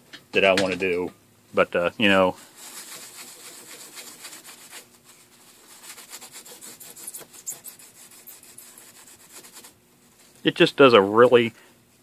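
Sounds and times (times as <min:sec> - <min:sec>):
hand rubbing circuit board: 0:05.6 - 0:09.7.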